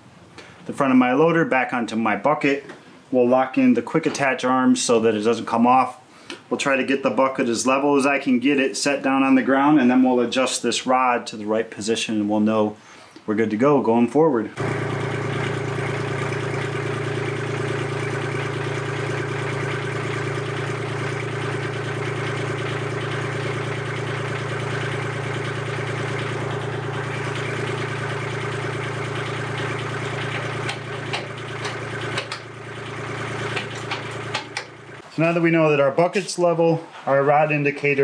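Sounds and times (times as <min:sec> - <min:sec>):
tractor diesel engine idling: 0:14.6 - 0:35.0.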